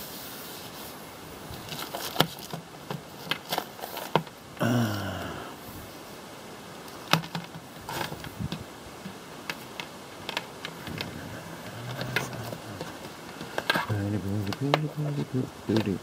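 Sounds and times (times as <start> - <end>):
steady background hiss: 0.0 - 16.0
cables and plugs clicking: 7.1 - 16.0.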